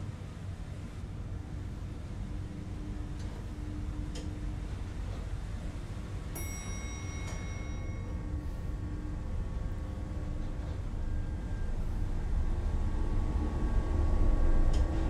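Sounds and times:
elevator humming: 1.2 - 15.0
elevator chime: 6.3 - 8.7.

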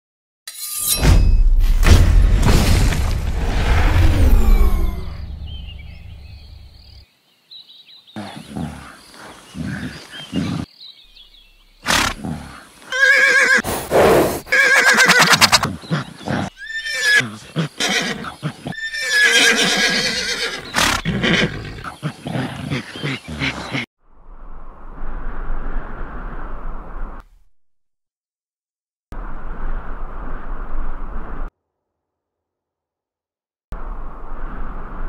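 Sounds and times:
horse neighing: 11.9 - 23.9.

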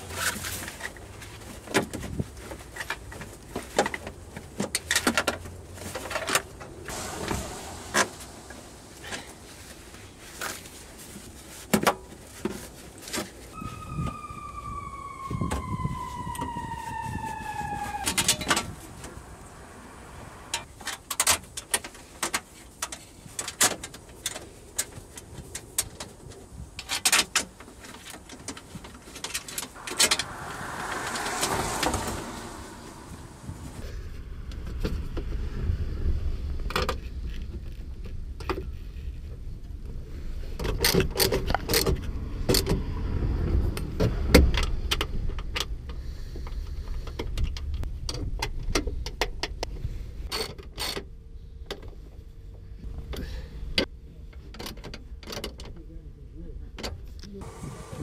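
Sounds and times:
low rumble: 6.8 - 10.7, 13.6 - 20.7, 29.8 - 38.0
falling tone with overtones: 6.9 - 9.8, 13.5 - 20.6, 29.8 - 33.8.

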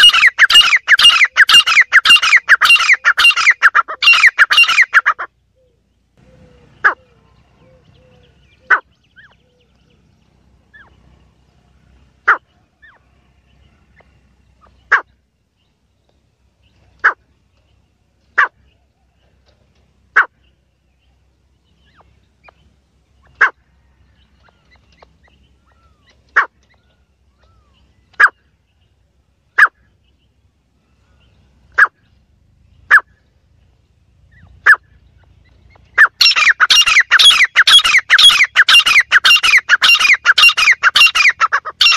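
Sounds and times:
francolin calling: 0.0 - 15.3, 29.5 - 41.9.

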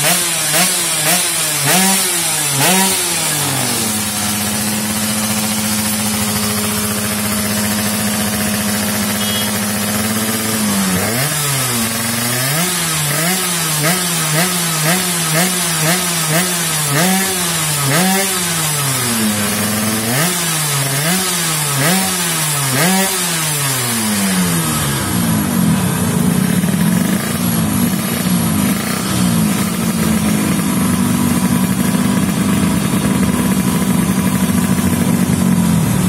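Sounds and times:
motorcycle engine revving: 0.0 - 36.0.

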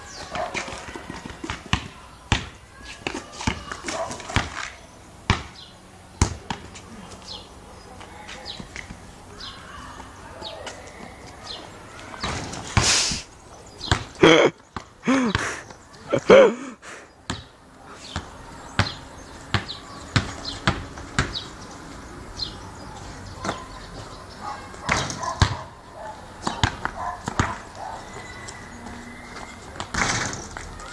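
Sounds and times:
players shouting: 0.0 - 4.6, 14.2 - 17.0
basketball bouncing on pavement: 0.1 - 7.2, 8.2 - 9.1, 13.8 - 15.8, 17.2 - 21.6, 23.4 - 30.9.

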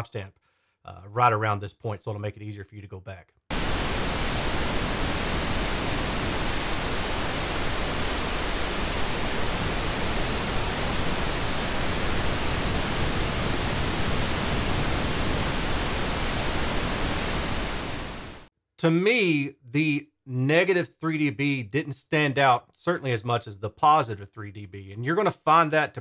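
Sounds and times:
pink noise hiss: 3.5 - 18.5.

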